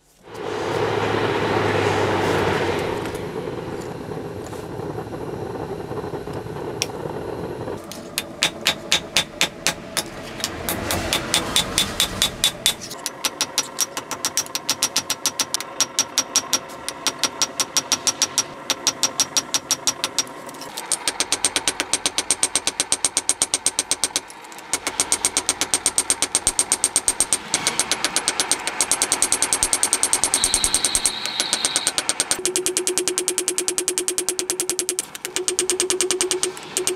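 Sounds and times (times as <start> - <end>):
hammer striking steel on anvil: 8.2 - 20.3.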